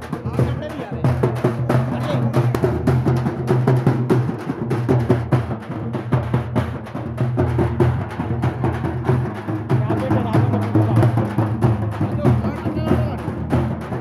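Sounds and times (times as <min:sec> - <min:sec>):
frame drums beaten with sticks: 0:00.0 - 0:14.0.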